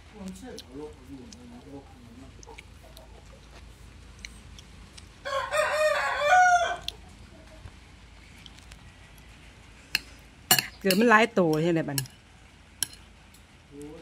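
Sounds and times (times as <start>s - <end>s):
rooster crowing: 5.2s - 7.0s.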